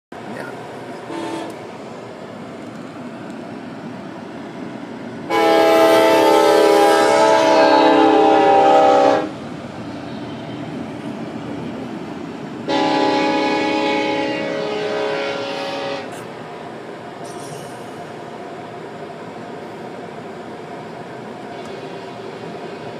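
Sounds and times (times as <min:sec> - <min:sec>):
train rumbling past: 0:00.2 - 0:22.9
train air horn: 0:01.1 - 0:01.6, 0:05.3 - 0:09.4, 0:12.7 - 0:16.2.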